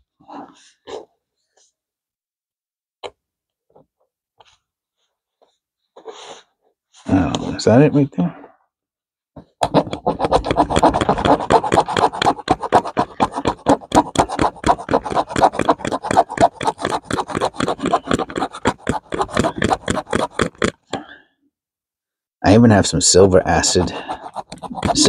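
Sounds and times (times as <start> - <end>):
metal file rasping on coin: 9.6 - 20.9, 23.5 - 25.0.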